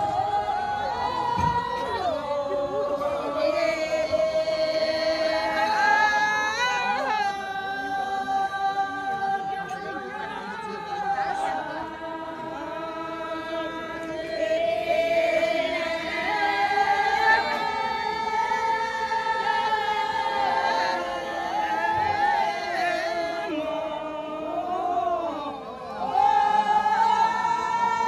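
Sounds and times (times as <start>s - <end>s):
group singing without instruments: 0.0s - 28.0s.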